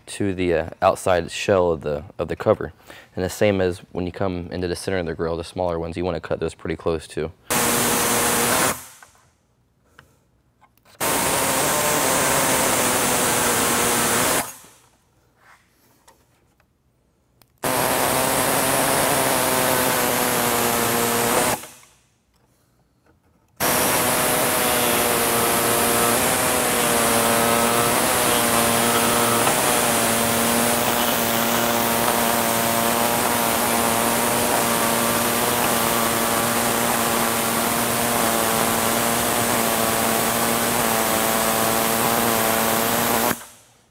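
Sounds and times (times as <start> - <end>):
reciprocating saw cutting plastic: 7.5 - 9.2, 10.9 - 14.9, 17.6 - 22.0, 23.6 - 43.7.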